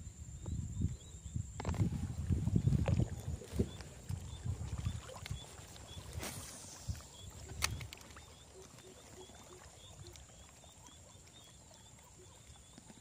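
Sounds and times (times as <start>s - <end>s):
high insect hum: 0.0s - 13.0s
frogs croaking: 0.8s - 13.0s
sharp click: 7.5s - 8.0s.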